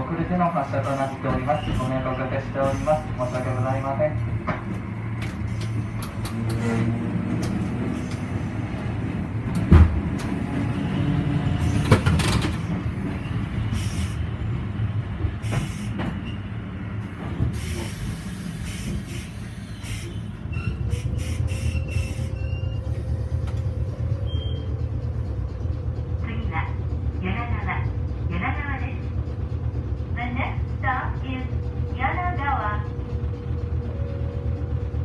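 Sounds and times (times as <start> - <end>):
streetcar running gear hum: 0.0 - 35.0
short high squeaks: 19.2 - 23.0.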